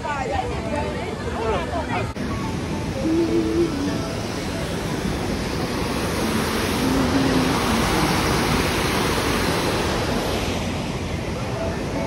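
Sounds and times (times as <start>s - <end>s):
water rushing down spillway: 2.1s - 12.0s.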